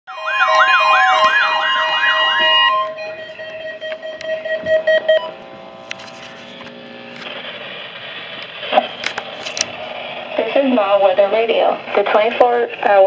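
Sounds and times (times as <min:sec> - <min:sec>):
wailing siren tone: 0:00.1 - 0:07.0
steady and beeping alarm tones: 0:00.1 - 0:08.3.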